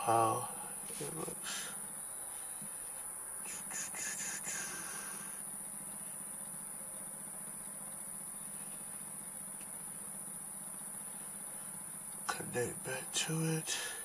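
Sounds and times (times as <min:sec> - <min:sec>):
high-pitched hiss: 0:00.0 - 0:14.0.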